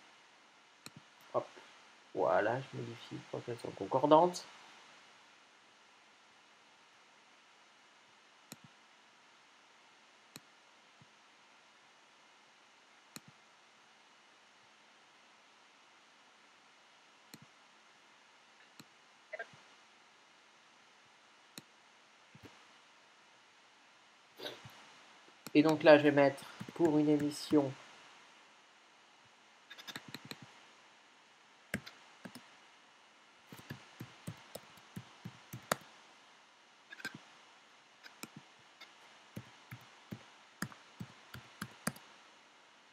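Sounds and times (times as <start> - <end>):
faint hiss: 0.0 - 42.9
computer mouse clicks: 8.5 - 8.7, 13.1 - 13.4, 29.7 - 30.5, 31.7 - 32.4, 33.5 - 35.9, 36.9 - 37.2, 38.0 - 42.1.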